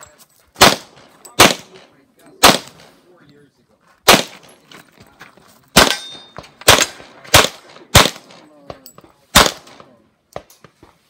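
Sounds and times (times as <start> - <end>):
pistol shots with echo: 0.6 - 2.9, 4.1 - 4.6, 5.8 - 8.5, 9.3 - 9.9.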